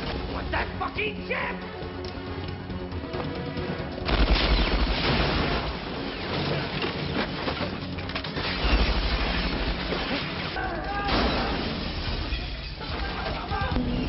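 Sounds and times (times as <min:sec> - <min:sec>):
rapid gunfire: 0:04.1 - 0:05.3
glass shattering: 0:04.1 - 0:13.3.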